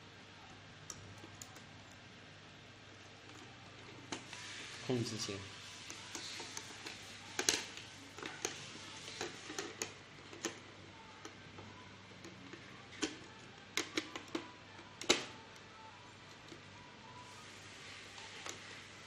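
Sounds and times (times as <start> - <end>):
small clicks and taps of parts: 12.2 - 15.4.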